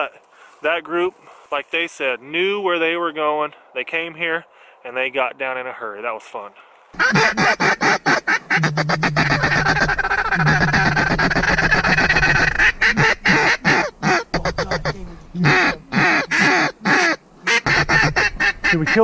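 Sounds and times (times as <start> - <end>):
duck quack calls: 7.0 - 19.0
goose honk calls: 7.0 - 19.0.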